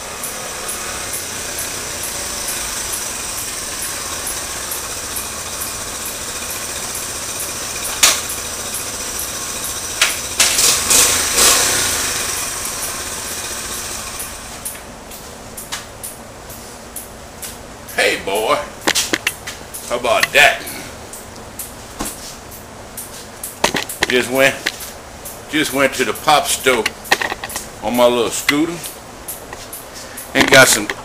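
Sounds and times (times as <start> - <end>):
motorbike engine running: 0.0 - 14.9
sharp clacks: 2.0 - 10.8, 18.8 - 20.5, 22.5 - 27.7, 28.4 - 31.0.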